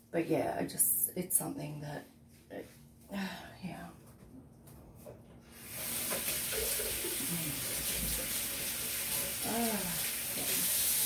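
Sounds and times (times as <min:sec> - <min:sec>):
tap water running into sink: 0:05.6 - 0:11.0.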